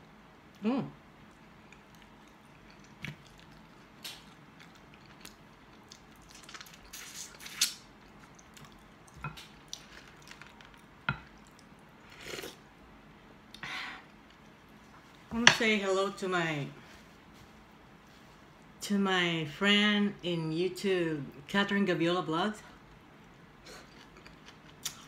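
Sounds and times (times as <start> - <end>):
chewing: 1.6 - 12.6, 23.2 - 25.0.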